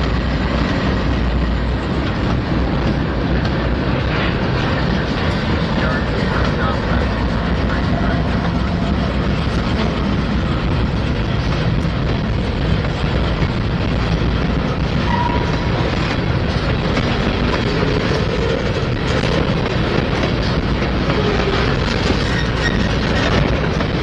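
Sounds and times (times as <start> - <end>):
freight train wheels rumbling: 0.0 - 24.0
train wheel squeal: 15.0 - 15.9, 21.2 - 23.6.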